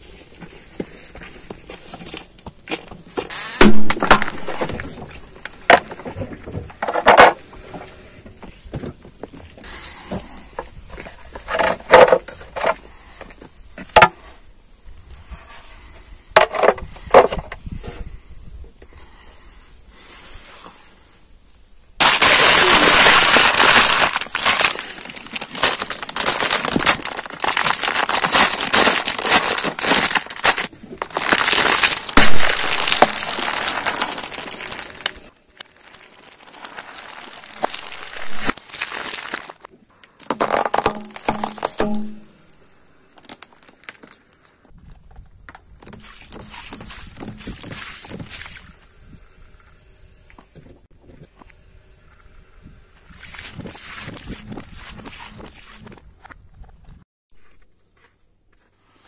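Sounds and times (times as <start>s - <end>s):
plastic helmet creaking and cracking: 1.5s - 14.2s, 16.4s - 18.1s, 22.0s - 42.3s, 43.1s - 48.4s
plastic packet crushed crackling: 3.6s - 6.0s, 22.0s - 42.3s, 43.1s - 44.6s.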